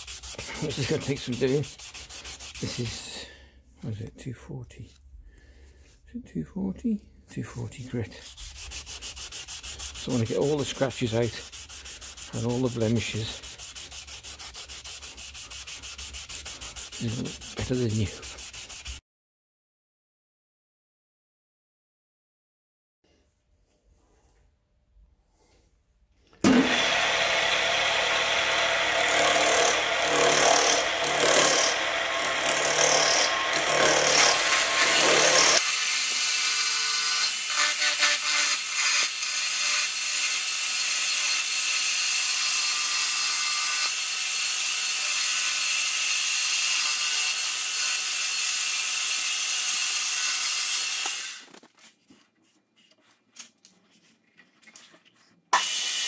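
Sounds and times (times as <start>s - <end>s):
lathe turning tool cutting wood: 26.5s - 35.6s.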